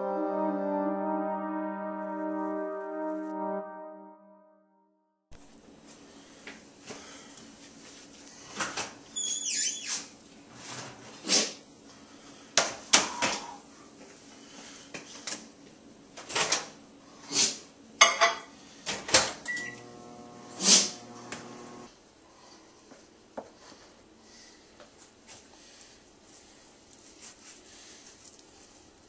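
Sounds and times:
steady hum: 0:19.6 - 0:22.0.

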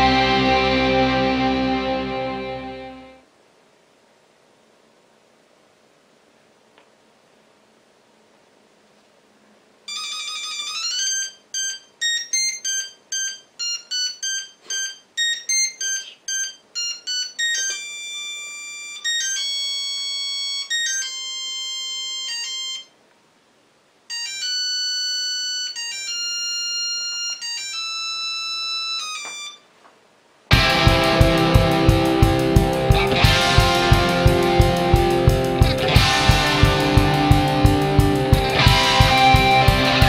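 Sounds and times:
electronic beep tune: 0:09.9 - 0:19.5.

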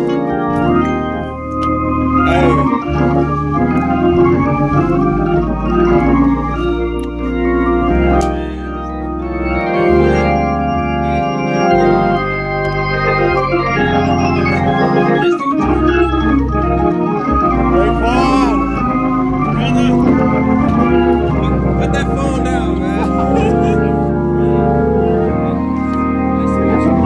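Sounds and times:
gospel organ chords: 0:00.0 - 0:27.0.

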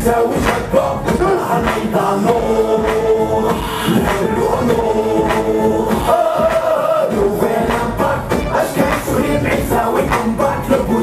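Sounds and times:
amplified singing: 0:00.0 - 0:11.0
backing music: 0:00.0 - 0:11.0.

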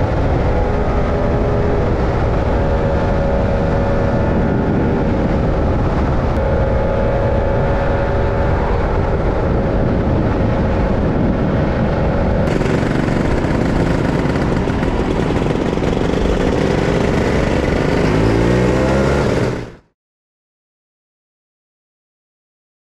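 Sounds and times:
wind rush on microphone: 0:00.0 - 0:19.8
scooter engine running: 0:12.4 - 0:19.9.

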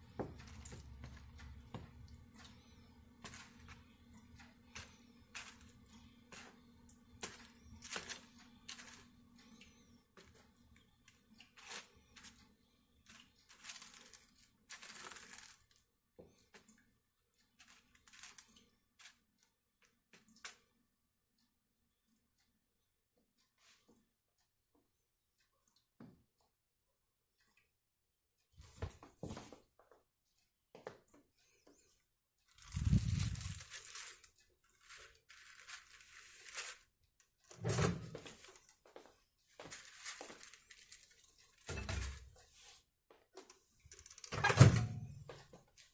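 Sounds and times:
plastic spoon stirring mashed food: 0:03.1 - 0:09.3
plastic film crinkling: 0:07.2 - 0:09.1, 0:13.0 - 0:15.8, 0:17.6 - 0:19.2, 0:32.5 - 0:37.0, 0:39.6 - 0:42.4.

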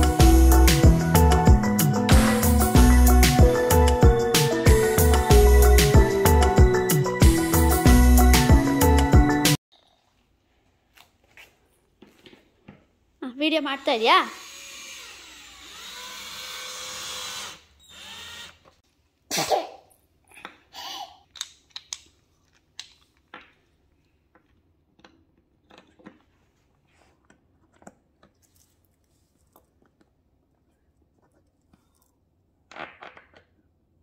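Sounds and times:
cordless drill driving screw: 0:14.3 - 0:18.8.

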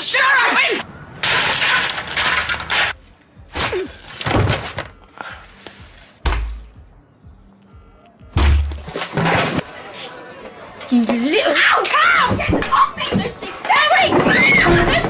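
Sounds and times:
music: 0:02.8 - 0:09.7.

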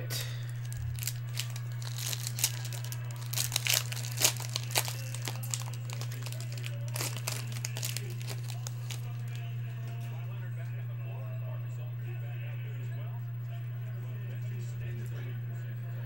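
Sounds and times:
foil pack crinkling and tearing: 0:00.5 - 0:10.0.

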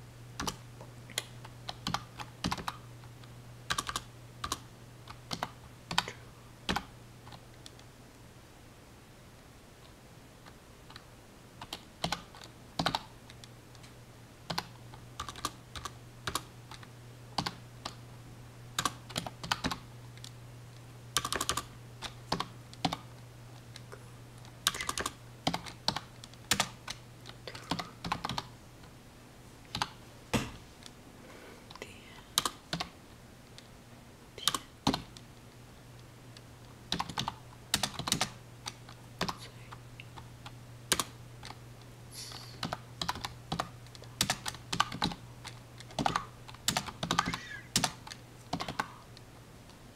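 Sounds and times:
steady low hum: 0:00.0 - 0:49.9
computer keyboard typing: 0:00.4 - 0:00.6, 0:01.7 - 0:02.8, 0:03.7 - 0:07.8, 0:11.6 - 0:13.4, 0:14.5 - 0:18.0, 0:18.8 - 0:20.4, 0:21.2 - 0:23.0, 0:24.6 - 0:28.5, 0:32.4 - 0:32.9, 0:34.4 - 0:35.2, 0:36.9 - 0:39.4, 0:40.9 - 0:41.6, 0:42.6 - 0:49.0.

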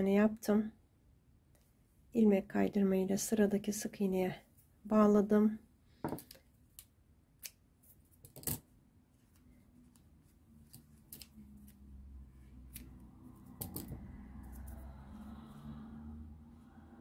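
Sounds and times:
scissors snipping yarn: 0:06.2 - 0:07.6, 0:10.6 - 0:11.9, 0:12.5 - 0:14.9.

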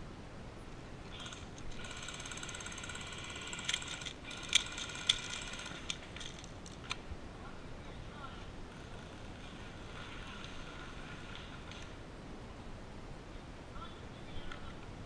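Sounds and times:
magazine winding ratchet: 0:01.2 - 0:06.9
sharp clicks of rifle handling: 0:03.4 - 0:07.0.

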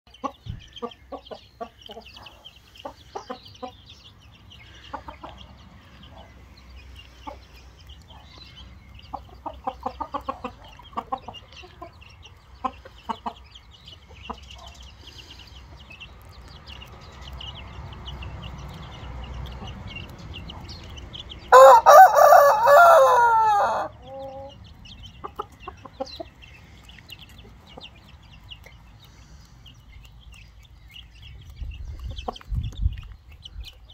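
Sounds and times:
chickens clucking: 0:00.1 - 0:33.9
rooster crowing: 0:21.5 - 0:24.5.

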